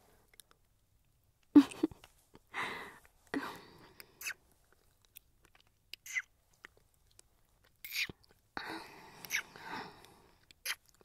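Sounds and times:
breaths: 2.5s - 4.2s, 8.6s - 10.6s
lip smacks: 3.9s - 8.4s, 9.2s - 11.0s.

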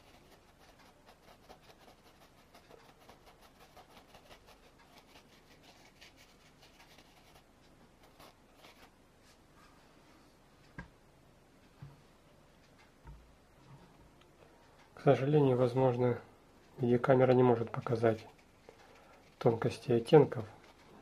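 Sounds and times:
paintbrush scratching on wood: 0.0s - 8.9s.

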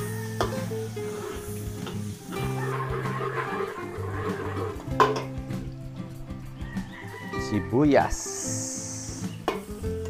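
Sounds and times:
garlic sizzling in hot oil: 0.0s - 5.8s
background music with held notes: 0.0s - 10.0s.

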